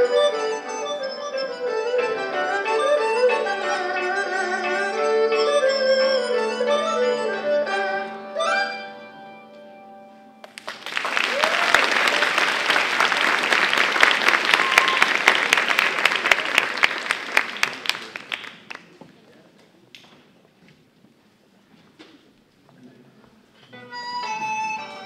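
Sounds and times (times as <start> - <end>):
bowed erhu: 0.0 - 8.9
hammered dulcimer: 0.0 - 9.4
audience applause: 10.4 - 19.0.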